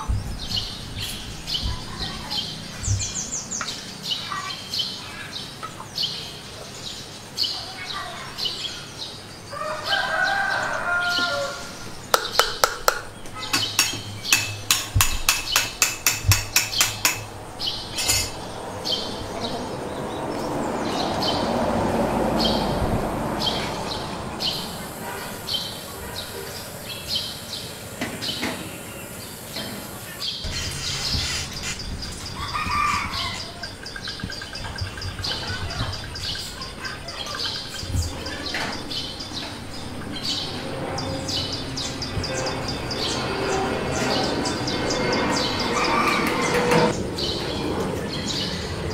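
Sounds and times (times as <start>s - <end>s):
small birds chirping: 0.0s - 46.2s
rushing noise: 17.3s - 26.9s.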